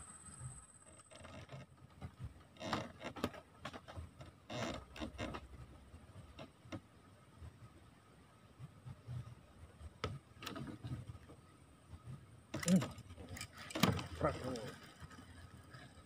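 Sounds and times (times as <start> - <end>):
small handling clicks and knocks: 0.9 - 6.9, 9.9 - 11.4, 12.5 - 16.0.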